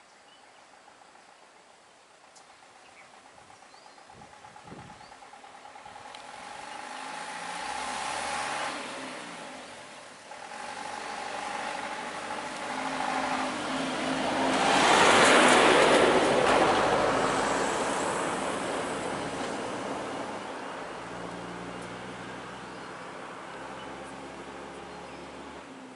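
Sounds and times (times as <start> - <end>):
vehicle engines idling: 0.0 - 25.9
vehicle passing close: 5.5 - 25.9.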